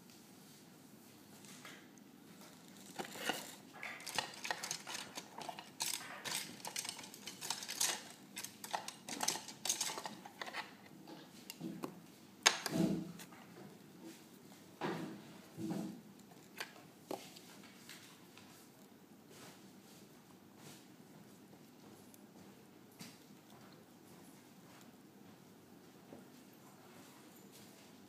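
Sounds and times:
pens rattling in wooden box: 2.5s - 10.8s.

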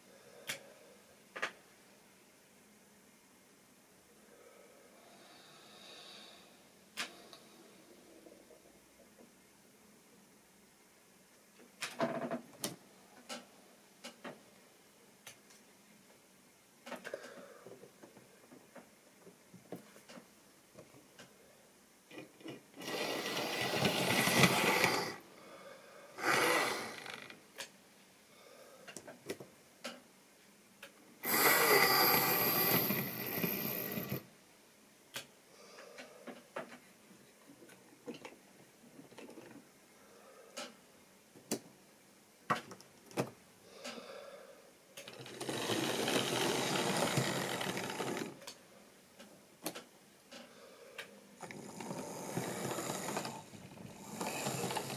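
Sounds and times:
model train motors whirring: 22.8s - 25.2s, 26.2s - 27.2s, 31.2s - 34.2s, 45.1s - 48.4s, 51.4s - 54.9s
wheels clicking over track: 22.8s - 25.2s, 45.1s - 48.4s, 51.8s - 54.9s.

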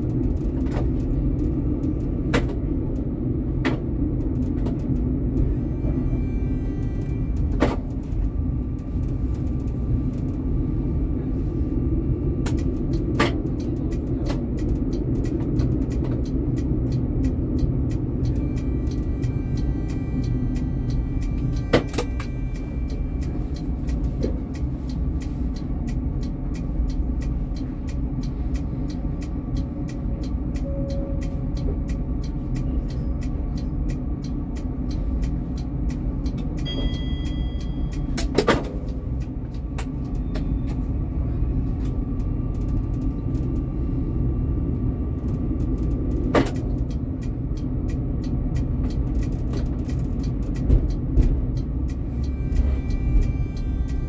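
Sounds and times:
tram wheels rumbling on rails: 0.0s - 54.0s
faint regular clicks: 12.4s - 40.8s, 45.2s - 54.0s
brief high tone: 30.6s - 31.2s.

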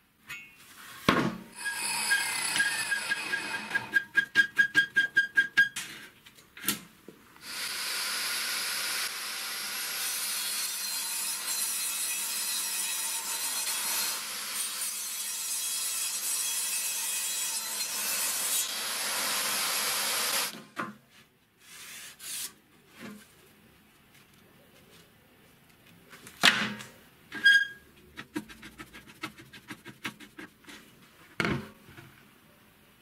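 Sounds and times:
table saw cutting chipboard: 1.6s - 4.0s, 7.4s - 20.6s.

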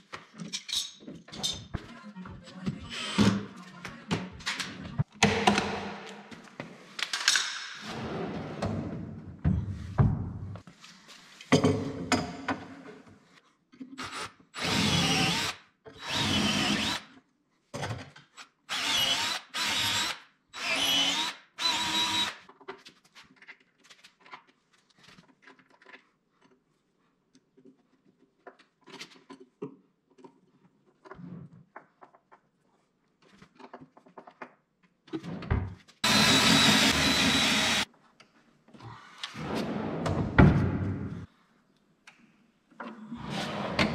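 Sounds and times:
cordless drill driving screws: 14.0s - 17.0s, 18.7s - 22.4s, 36.0s - 37.9s.

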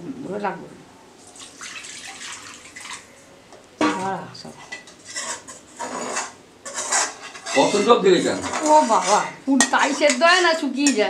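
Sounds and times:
metal spoon scraping pots: 3.8s - 11.0s.

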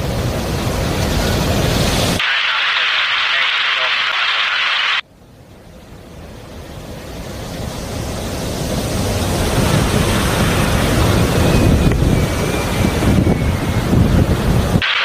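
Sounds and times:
distant jet airliner noise: 0.0s - 15.0s
wind on microphone: 8.0s - 14.8s.

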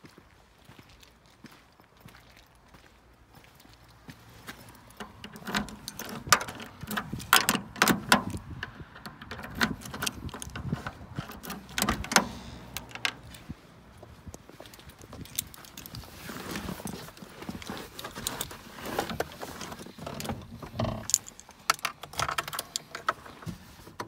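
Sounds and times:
car door and fittings clicking: 4.9s - 13.5s, 17.6s - 24.0s.

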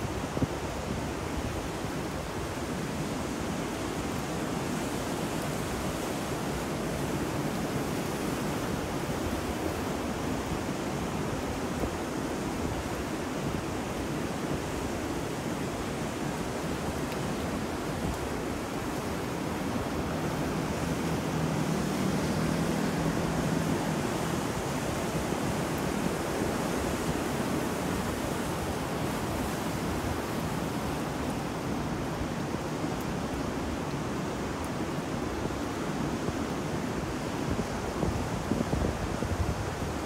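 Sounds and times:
rain: 0.0s - 40.0s
wind: 0.0s - 40.0s
ocean waves breaking: 2.9s - 34.6s.

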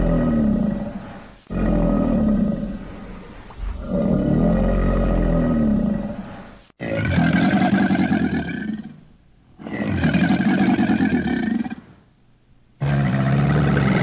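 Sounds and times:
crocodile bellowing: 0.0s - 9.0s, 12.8s - 14.0s.

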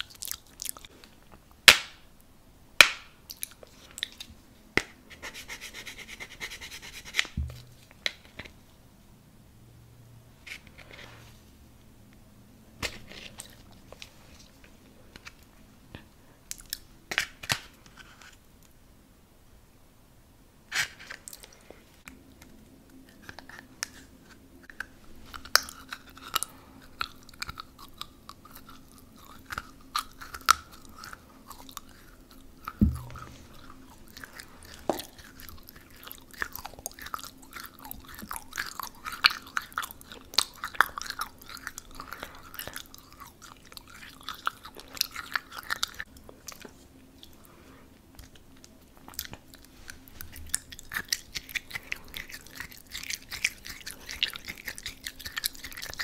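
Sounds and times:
close-miked chewing and crunching: 0.0s - 1.4s, 3.3s - 4.4s, 12.8s - 18.4s, 20.8s - 56.0s.

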